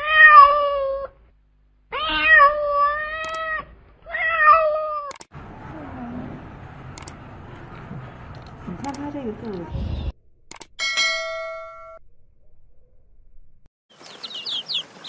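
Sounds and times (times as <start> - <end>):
cat meowing: 0.0 - 1.2, 1.9 - 5.1.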